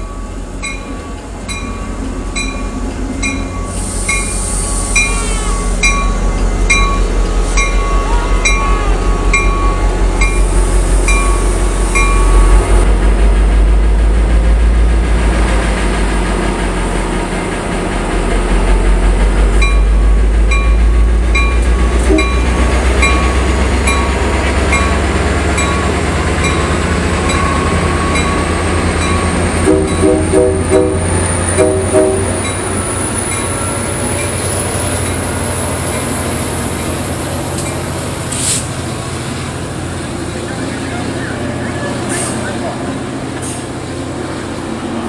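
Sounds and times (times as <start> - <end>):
crossing bells dinging: 0.0 - 12.8, 19.5 - 37.9
diesel locomotive engine rumbling: 0.0 - 45.0.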